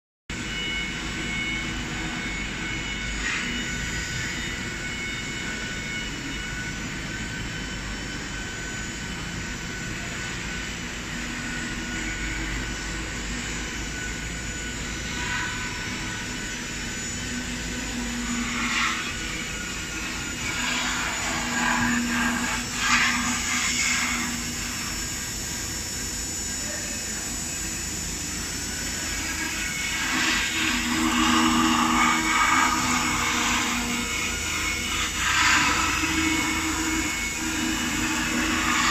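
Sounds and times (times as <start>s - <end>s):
router spindle whining: 0.3s - 38.9s
bit cutting foam: 17.8s - 25.2s, 28.6s - 38.9s.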